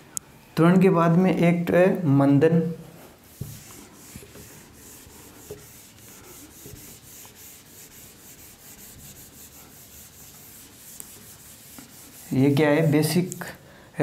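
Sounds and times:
eraser rubbing on whiteboard: 3.2 - 13.0.

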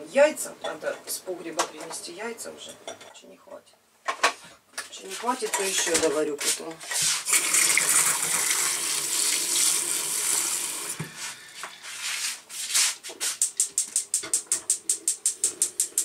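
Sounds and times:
tap water running into saucepan: 7.3 - 11.1
gas hob igniter clicking: 13.4 - 16.0.

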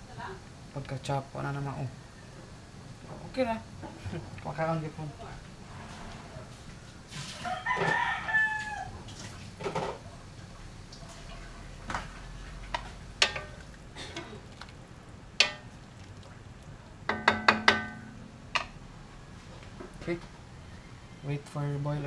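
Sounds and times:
utensil clinking on metal wok: 13.2 - 13.7, 15.4 - 15.8, 17.1 - 18.8.

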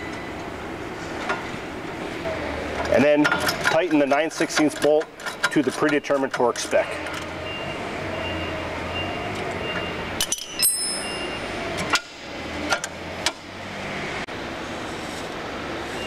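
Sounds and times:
metal clink with ring: 10.2 - 11.5.

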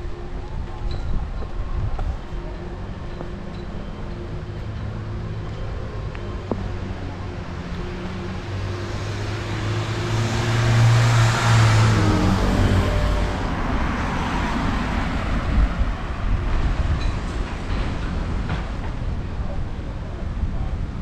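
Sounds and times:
steady traffic noise: 0.0 - 21.0
vehicle driving past: 6.7 - 15.4.

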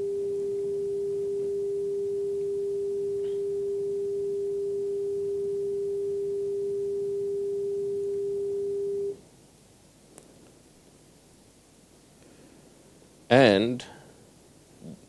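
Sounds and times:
steady sine tone: 0.0 - 9.2.

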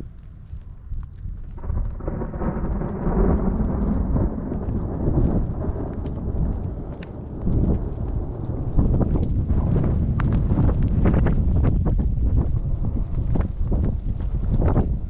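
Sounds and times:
thunder rumbling: 0.0 - 15.0
light ticks: 2.8 - 9.4.

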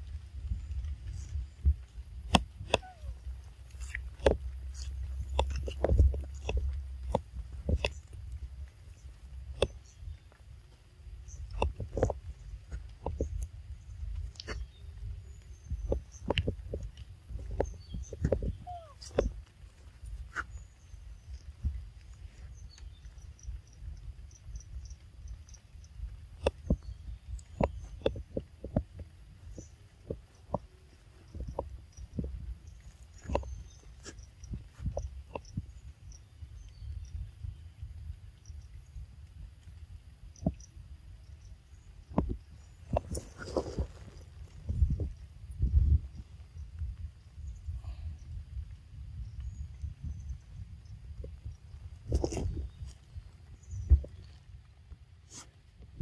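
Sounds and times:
irregular taps and rustles: 0.0 - 36.8
low steady rumble: 0.0 - 56.0
soft knocks and thumps: 15.7 - 19.5.

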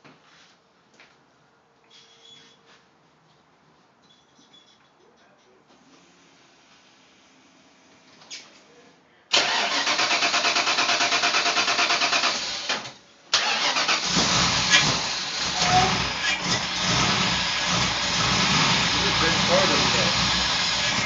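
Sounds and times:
starter cranking engine: 9.3 - 21.0
car engine running: 13.9 - 21.0.

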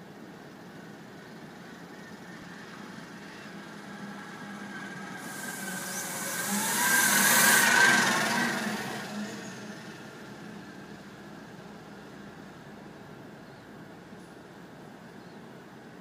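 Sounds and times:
truck diesel engine: 0.1 - 15.7
loud air hiss: 5.1 - 9.8.

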